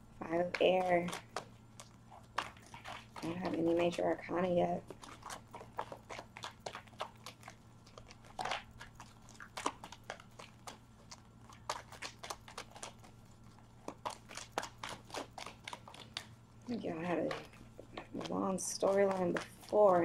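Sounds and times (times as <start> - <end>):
cards being shuffled: 4.8 - 13.2, 13.8 - 20.0.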